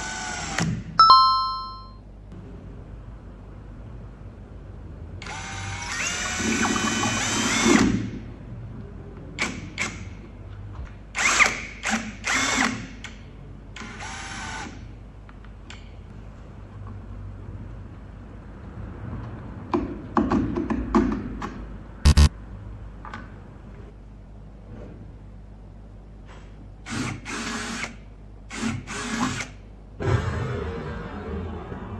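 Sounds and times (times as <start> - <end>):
power drill driving screws: 11.2 - 12.9.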